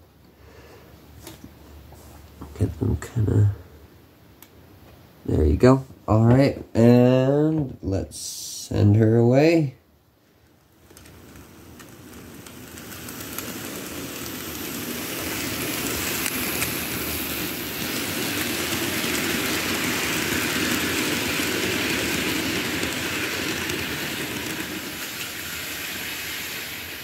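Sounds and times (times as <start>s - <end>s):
model train rolling rumble: 10.8s - 27.0s.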